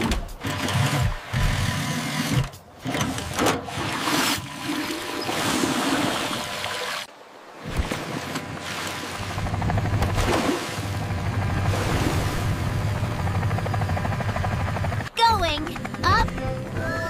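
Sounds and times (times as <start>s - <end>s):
background music: 15.1s - 17.0s.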